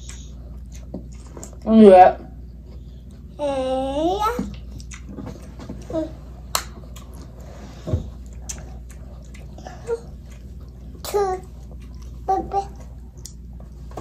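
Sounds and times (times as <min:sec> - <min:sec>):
eating clicks and smacks: 0:04.5 - 0:05.6, 0:06.5 - 0:07.3, 0:08.2 - 0:12.2, 0:12.8 - 0:13.7.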